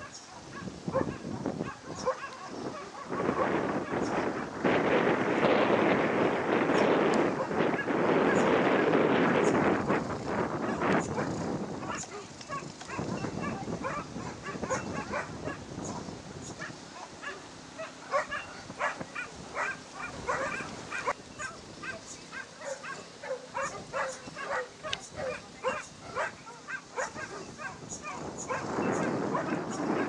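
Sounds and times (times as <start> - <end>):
dog barking: 0.0 - 4.2, 10.6 - 16.0, 16.6 - 30.0.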